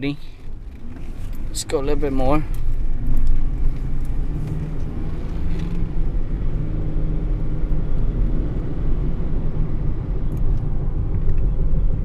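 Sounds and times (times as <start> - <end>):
road noise inside truck cab: 0.0 - 12.0.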